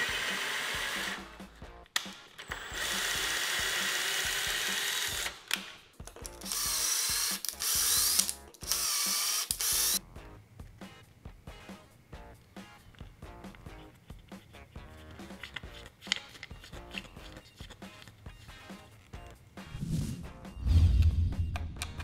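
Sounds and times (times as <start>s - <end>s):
cordless drill turning: 0.0s - 1.2s, 2.4s - 5.3s, 6.4s - 10.0s.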